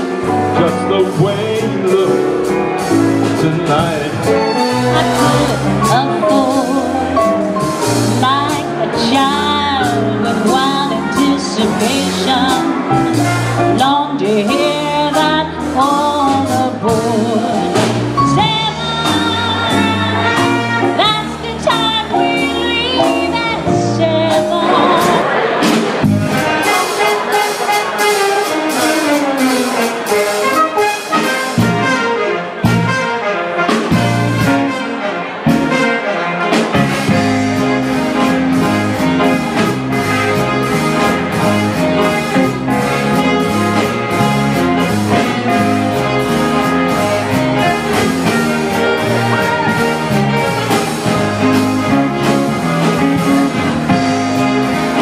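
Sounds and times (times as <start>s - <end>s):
swing band playing: 0.0s - 55.0s
woman singing into a microphone: 5.0s - 7.2s, 8.1s - 12.8s, 13.7s - 25.2s.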